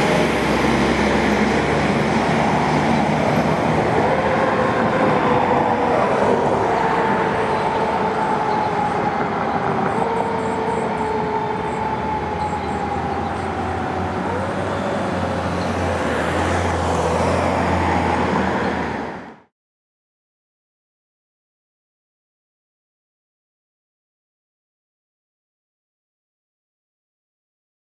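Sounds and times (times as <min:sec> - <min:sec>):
fire engine siren wailing: 0:00.0 - 0:19.5
passing traffic: 0:00.0 - 0:19.5.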